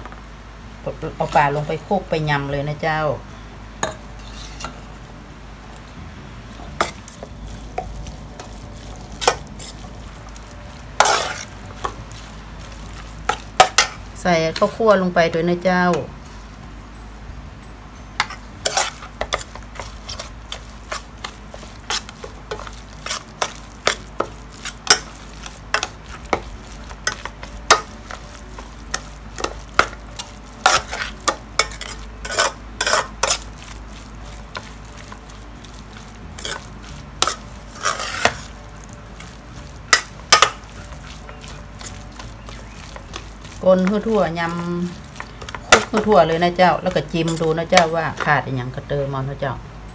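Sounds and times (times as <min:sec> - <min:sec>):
spoon stirring in metal bowl: 0:03.8 - 0:05.0, 0:06.7 - 0:15.0, 0:18.2 - 0:48.4.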